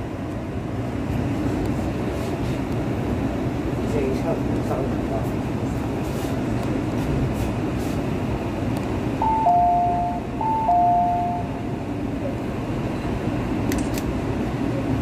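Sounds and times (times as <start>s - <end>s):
low hum of stopped train: 0.0s - 15.0s
two-note electronic chime: 9.2s - 11.6s.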